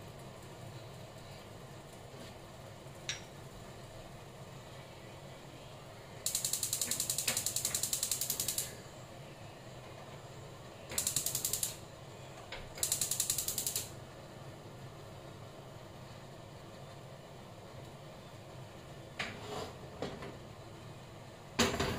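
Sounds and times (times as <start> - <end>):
stove spark igniter clicking: 6.3 - 8.8, 10.9 - 11.8, 12.8 - 14.0.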